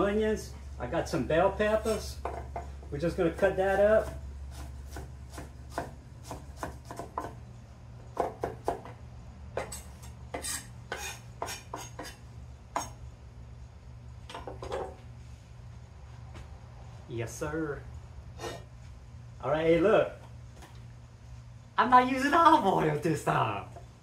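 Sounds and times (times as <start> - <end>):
steady low hum: 0.0 - 24.0
knife chopping on wooden board: 1.9 - 7.4, 8.1 - 9.0, 9.6 - 12.2.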